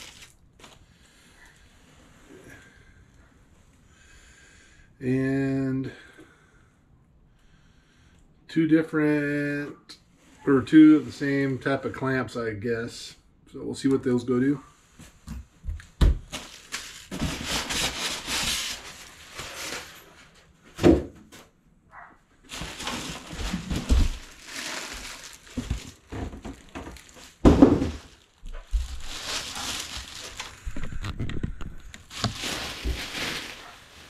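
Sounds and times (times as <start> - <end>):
plastic bag and styrofoam crinkling: 0.0 - 1.7, 16.2 - 20.4, 22.4 - 34.0.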